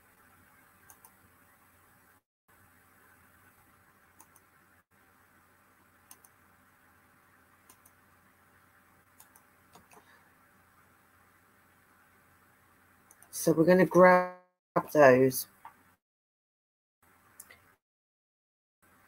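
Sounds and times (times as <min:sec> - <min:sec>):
room tone hum and hiss: 0:00.0 - 0:14.0
computer mouse clicks: 0:00.8 - 0:01.2, 0:04.2 - 0:04.5, 0:06.1 - 0:06.4, 0:07.6 - 0:08.0, 0:09.2 - 0:10.1, 0:13.1 - 0:13.3.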